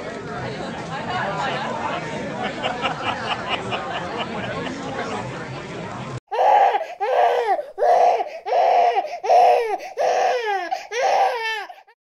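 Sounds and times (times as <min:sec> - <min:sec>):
baby crying: 0:06.3 - 0:12.0.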